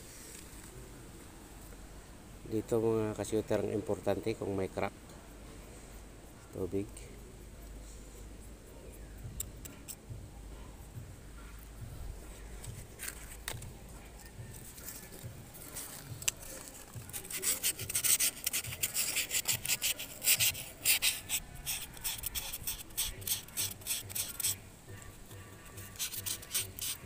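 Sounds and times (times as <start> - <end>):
rubbing and scraping strokes: 12.2 - 27.0.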